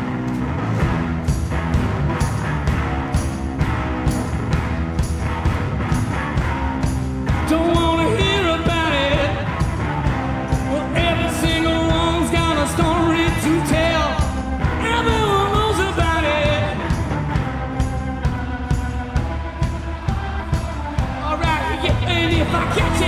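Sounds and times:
drums: 0:00.0 - 0:23.0
electric guitar: 0:00.0 - 0:23.0
live rock band playing: 0:00.0 - 0:23.0
man singing: 0:07.3 - 0:17.1, 0:21.0 - 0:23.0.

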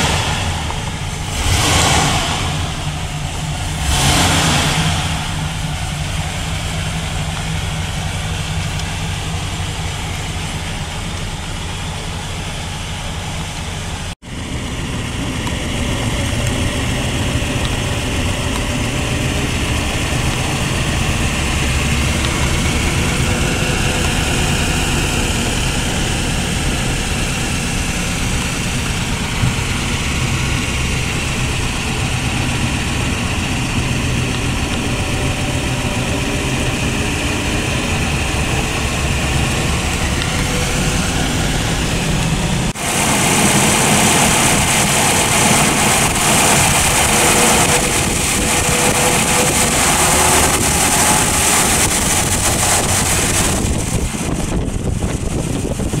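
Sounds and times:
car engine running: 0:00.0 - 0:56.0
tyre road hiss: 0:00.0 - 0:56.0
wind noise: 0:14.3 - 0:56.0.

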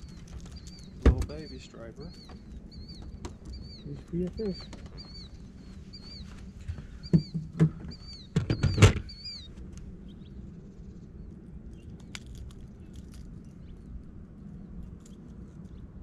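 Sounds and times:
bird chirping: 0:00.0 - 0:16.0
knocks: 0:07.1 - 0:09.1.

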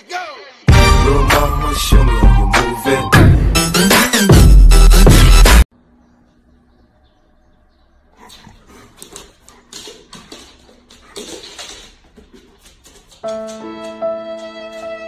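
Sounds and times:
dog vocalizing: 0:08.1 - 0:12.9.

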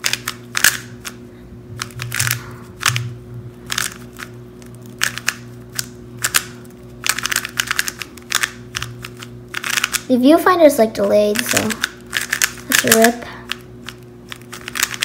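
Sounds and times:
plastic puzzle cube clacking: 0:00.0 - 0:01.2, 0:03.7 - 0:04.3, 0:05.0 - 0:10.1, 0:11.4 - 0:15.0.

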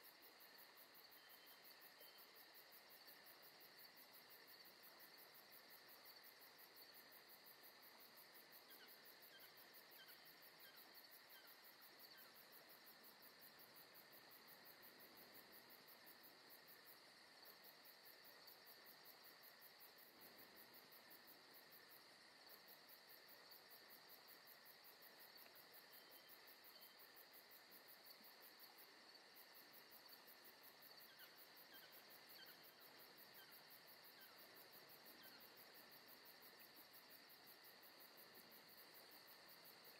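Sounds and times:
faint insect chirring: 0:00.0 - 0:39.9.

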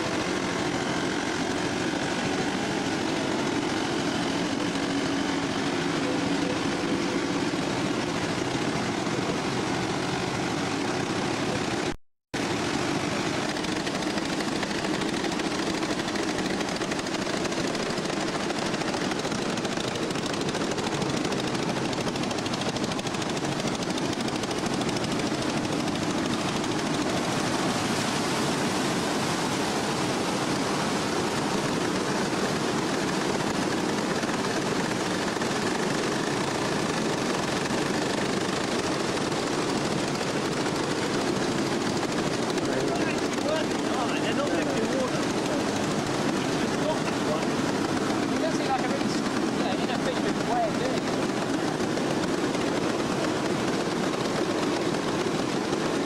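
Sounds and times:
wooden waterwheel rattling: 0:00.0 - 0:56.0.

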